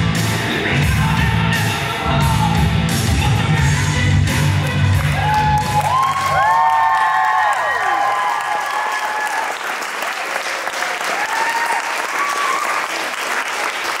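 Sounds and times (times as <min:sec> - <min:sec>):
audience applauding: 0:04.9 - 0:14.0
high whooping cheers: 0:05.0 - 0:09.8, 0:10.6 - 0:13.2.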